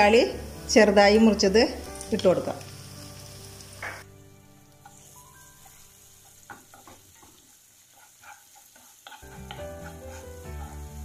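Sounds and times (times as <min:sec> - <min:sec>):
onions sizzling in oil: 0:00.0 - 0:11.0
spatula scraping and tapping pan: 0:04.8 - 0:11.0.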